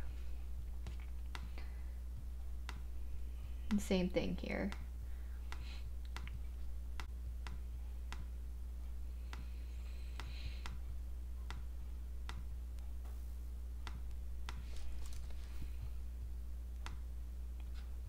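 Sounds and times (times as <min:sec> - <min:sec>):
steady low hum: 0:00.0 - 0:18.0
mouse clicking: 0:00.8 - 0:01.7, 0:05.5 - 0:08.3.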